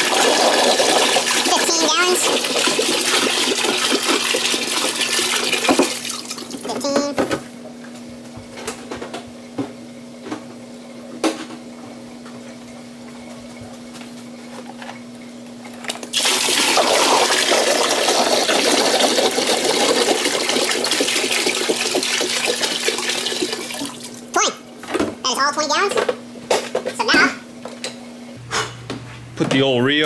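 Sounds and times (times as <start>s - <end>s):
water pouring into plastic can: 0.0s - 6.6s, 16.1s - 24.2s.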